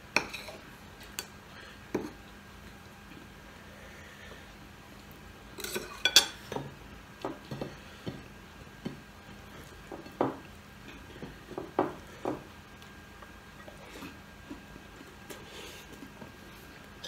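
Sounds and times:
cutlery clinking on plates: 5.6s - 6.5s.

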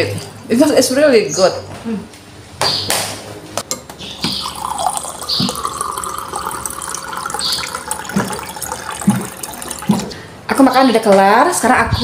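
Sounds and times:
water pouring into a glass: 4.2s - 10.2s.

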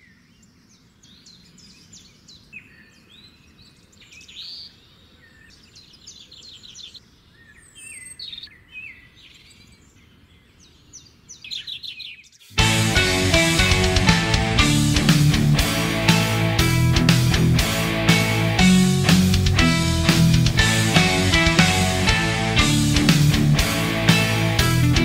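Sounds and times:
small birds chirping and trilling: 0.0s - 12.6s.

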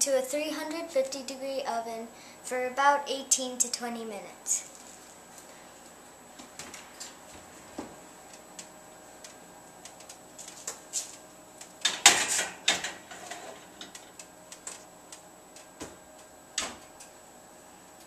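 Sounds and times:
clatter and scrape: 12.1s - 14.0s.

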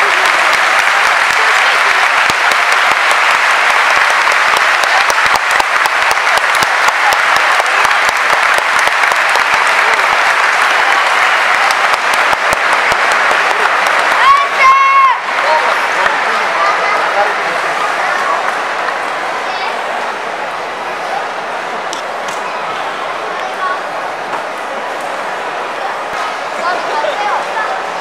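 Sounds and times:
stadium crowd applauding: 0.0s - 28.0s.

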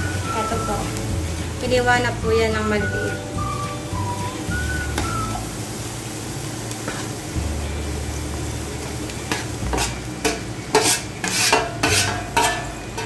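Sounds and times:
garlic and onion sizzling in oil: 0.0s - 13.0s
meat scraping off metal tray: 9.6s - 10.0s, 10.7s - 12.8s.

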